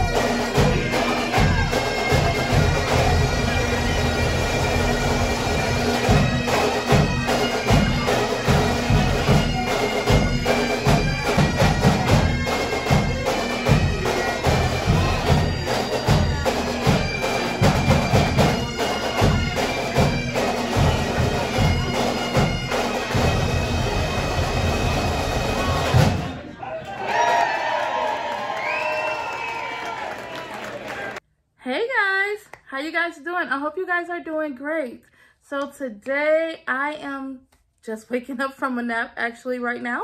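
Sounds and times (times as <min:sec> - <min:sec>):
bagpipes playing a tune: 0:00.0 - 0:26.1
drum beat: 0:00.0 - 0:26.4.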